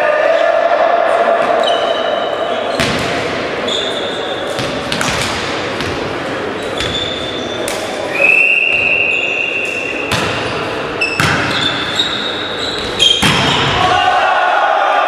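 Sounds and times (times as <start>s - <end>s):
sneaker squeaks: 1.6s - 3.0s, 3.6s - 5.2s, 6.5s - 13.8s.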